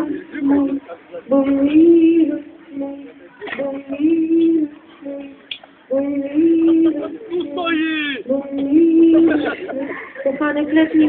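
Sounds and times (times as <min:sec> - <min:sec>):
woman singing long notes: 0:00.0 - 0:07.6, 0:08.2 - 0:11.0.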